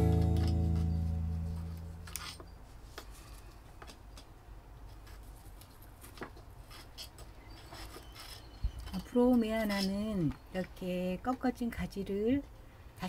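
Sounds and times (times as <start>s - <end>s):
plucked guitar chord: 0.0s - 2.0s.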